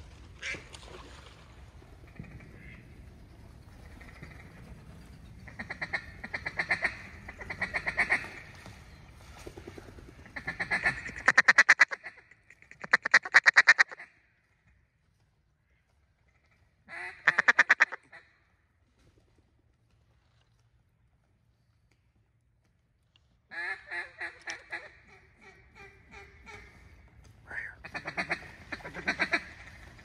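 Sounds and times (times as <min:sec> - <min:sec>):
duck calls chattering: 0:05.4 - 0:08.7, 0:10.2 - 0:14.1, 0:16.4 - 0:18.2, 0:23.5 - 0:30.0.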